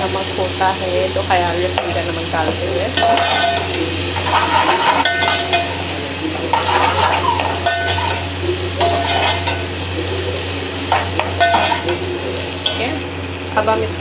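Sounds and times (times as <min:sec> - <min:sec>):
oil sizzling: 0:00.0 - 0:14.0
metal spatula scraping a pot: 0:03.0 - 0:05.8, 0:06.4 - 0:09.7, 0:10.9 - 0:12.9.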